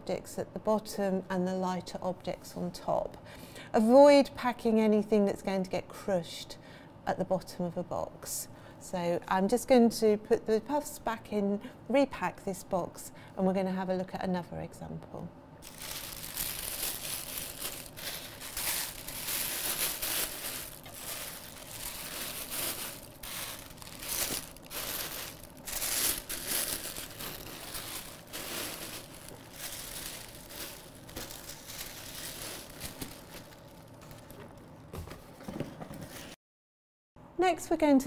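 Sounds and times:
tissue paper crinkling: 15.6 - 34.4.

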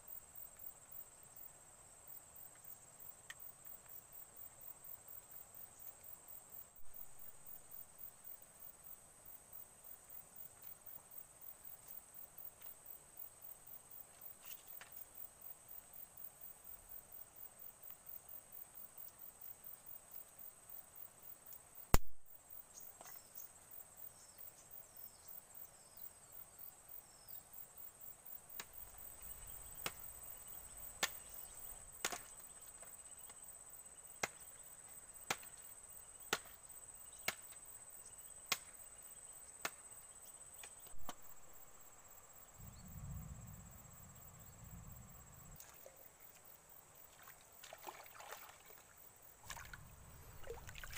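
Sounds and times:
insect trill: 0.0 - 50.9
low rumble: 42.6 - 45.6.

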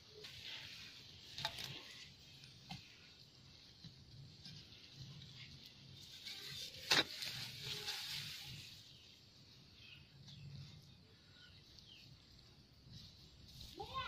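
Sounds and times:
earth scraping and crumbling: 3.8 - 9.1.

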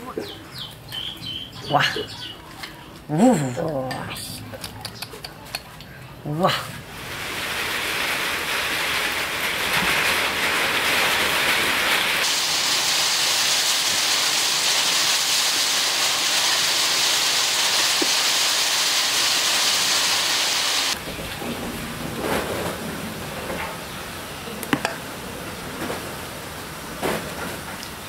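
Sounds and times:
loud steady hiss: 6.8 - 21.3.

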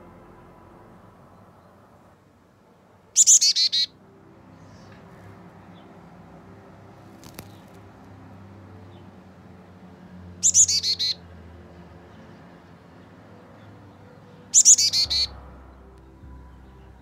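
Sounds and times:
chickadee calling: 3.2 - 4.0, 10.4 - 11.2, 14.5 - 15.3.

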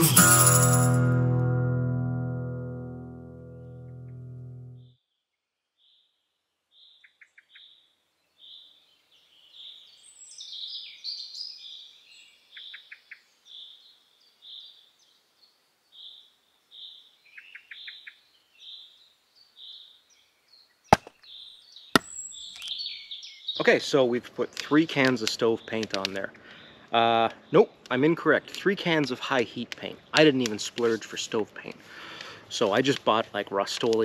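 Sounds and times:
small birds calling: 16.0 - 23.7
hatchet striking wood: 20.9 - 21.1, 22.0 - 22.7.

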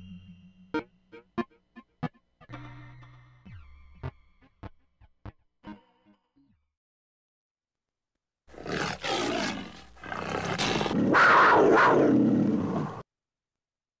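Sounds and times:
cat-like roar: 8.5 - 13.0.

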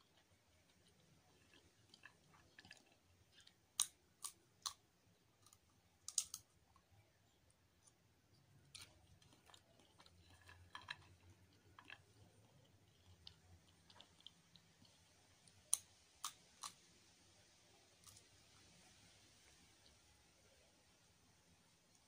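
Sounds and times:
chewing crunching: 0.0 - 4.8, 7.8 - 16.9
peanut shells cracking: 0.1 - 6.9, 8.7 - 14.8, 15.4 - 16.9.

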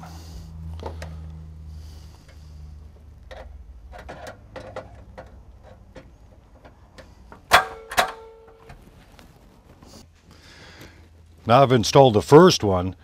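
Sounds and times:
loud metallic clack: 7.5 - 8.5.

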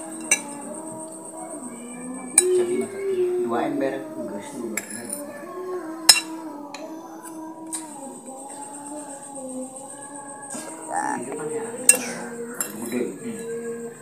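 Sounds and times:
background music: 10.4 - 13.2
eating noises: 10.5 - 12.4.

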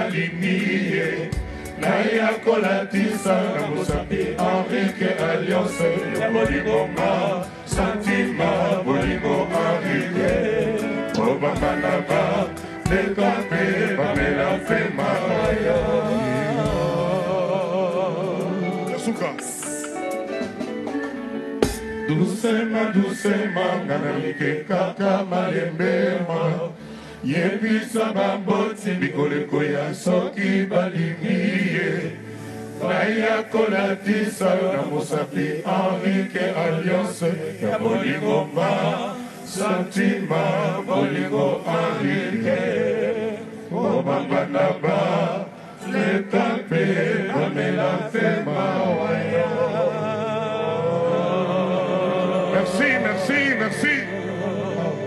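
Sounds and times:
men singing together: 0.0 - 20.1, 21.7 - 55.0
electric guitar: 0.0 - 55.0
drum hits: 21.6 - 22.0.

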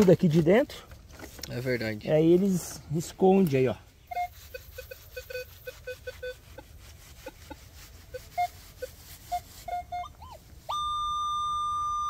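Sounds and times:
metal detector high-pitched tone: 4.1 - 6.4, 8.2 - 12.0
metal detector low beeps: 4.1 - 6.4, 9.6 - 12.0.

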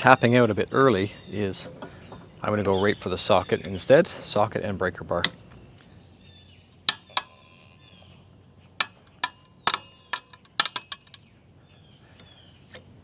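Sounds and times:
wood stick cracking: 6.7 - 7.4, 8.8 - 11.3.

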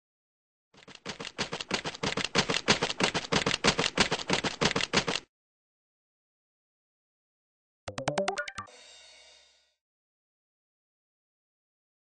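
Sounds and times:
fast sharp clicks: 0.8 - 5.2.

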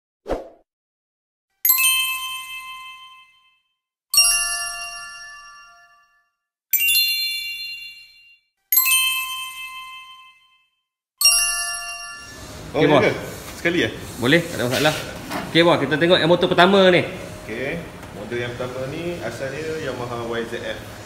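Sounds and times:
bell-like chime ringing: 1.7 - 12.7.

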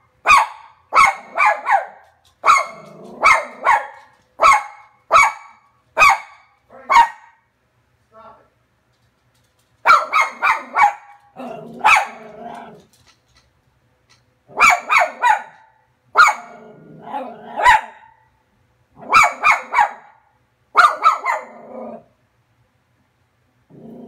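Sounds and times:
dog barking sharply: 0.2 - 7.4, 9.8 - 11.2, 11.8 - 12.2, 14.5 - 16.5, 19.0 - 20.2, 20.8 - 21.6.

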